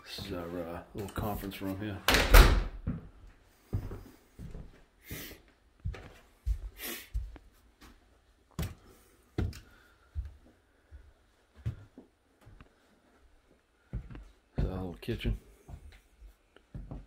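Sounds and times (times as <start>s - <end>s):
footsteps on carpet: 0.0s - 1.8s, 2.8s - 17.0s
person breathing: 3.4s - 5.6s, 6.4s - 7.4s, 8.6s - 14.4s.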